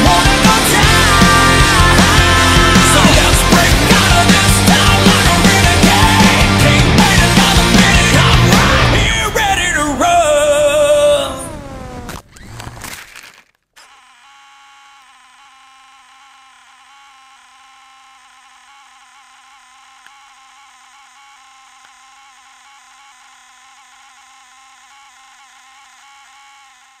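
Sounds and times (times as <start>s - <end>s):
high electronic whine: 0.0s - 12.2s
electronics buzzing hum: 10.4s - 12.8s, 13.8s - 27.0s.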